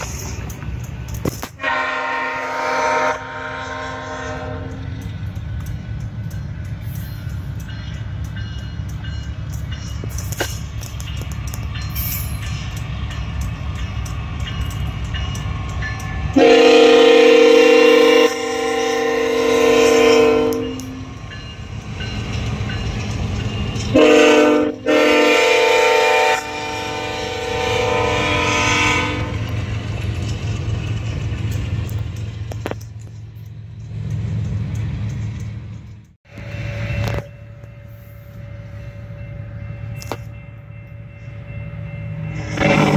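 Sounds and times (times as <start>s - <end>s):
locomotive air horn chord: 1.6s - 4.8s, 16.3s - 21.1s, 23.9s - 29.5s, 42.4s - 42.9s.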